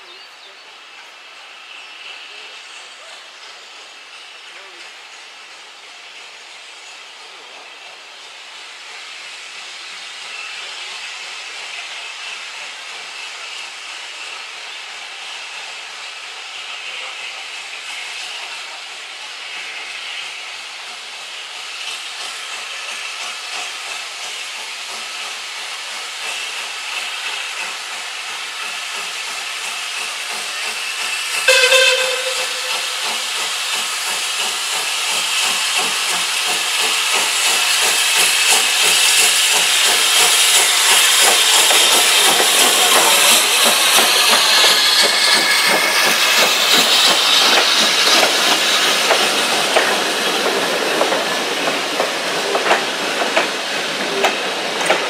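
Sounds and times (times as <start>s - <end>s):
steam locomotive exhaust beats: 3.2s - 55.0s
steam whistle blast: 31.3s - 34.0s.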